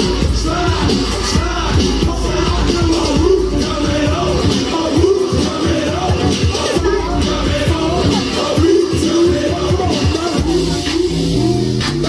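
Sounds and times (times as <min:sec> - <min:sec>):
upbeat dance music: 0:00.0 - 0:12.0.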